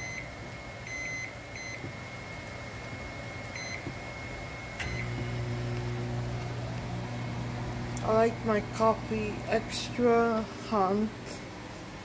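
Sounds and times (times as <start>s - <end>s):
microwave keypad beeping: 0.0s - 6.4s
microwave humming: 0.0s - 12.0s
microwave click: 4.7s - 8.1s.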